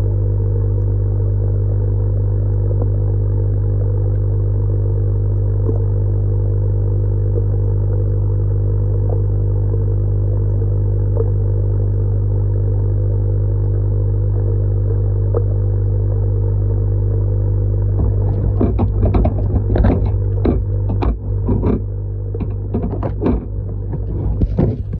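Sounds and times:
electric air pump humming: 2.7 - 24.9
irregular knocking and clattering: 18.0 - 24.9.

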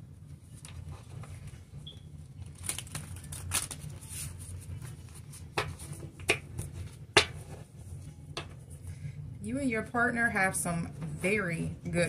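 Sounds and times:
cards being shuffled: 2.4 - 6.8.

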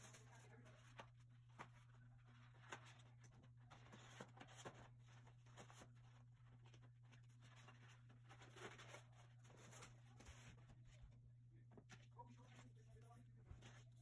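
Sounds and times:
paper rustling and tapping: 0.0 - 10.9
low steady hum: 0.0 - 14.0.

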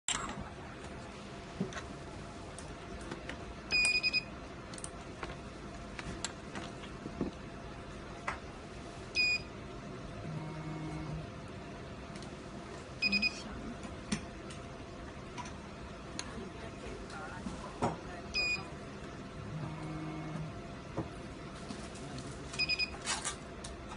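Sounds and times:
low motor hum: 9.7 - 12.9, 18.8 - 21.5.

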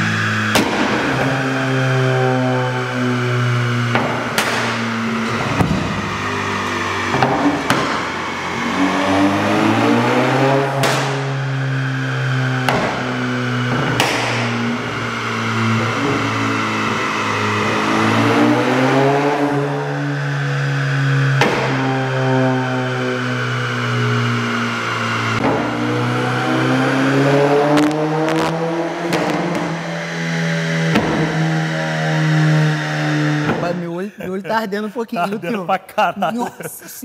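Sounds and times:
car engine revving: 0.0 - 34.0
exhaust pops and bangs: 0.4 - 1.4, 3.8 - 6.3, 7.0 - 8.3, 10.8 - 11.4, 12.6 - 14.9, 21.3 - 22.0, 27.7 - 30.0, 30.8 - 31.9.

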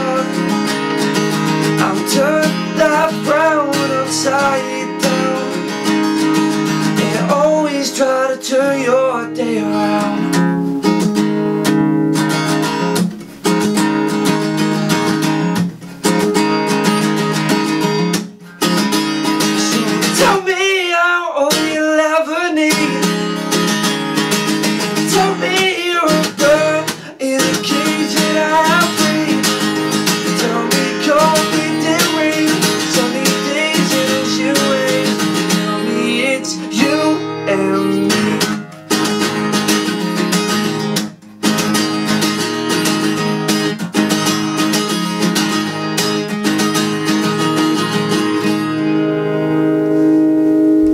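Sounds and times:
man singing: 0.0 - 0.9, 1.6 - 6.0, 6.8 - 10.6, 19.3 - 23.7, 24.8 - 38.7
acoustic guitar strumming: 0.0 - 50.9.

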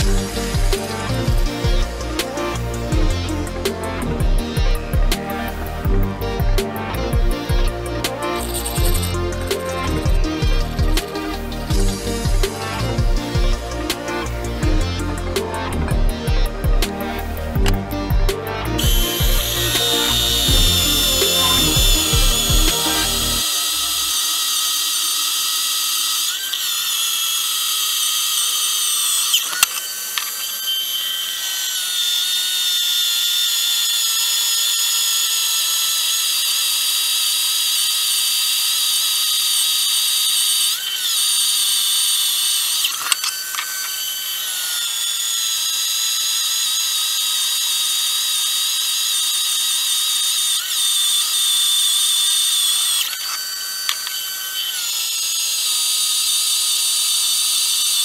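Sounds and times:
electric drill drilling into metal: 0.0 - 58.0.

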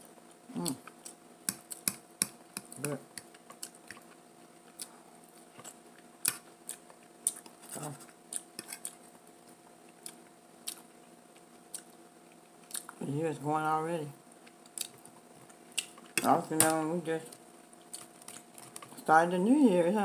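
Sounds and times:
fork clicking on food: 1.0 - 4.1
chewing and lip smacks: 8.3 - 13.0, 14.4 - 16.2.

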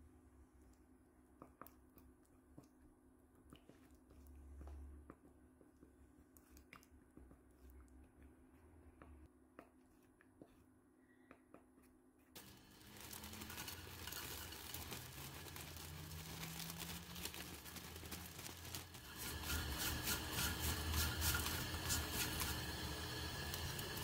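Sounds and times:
dried shrimp crackling in pan: 12.4 - 24.0
wooden spoon stirring thick sauce: 12.4 - 24.0.

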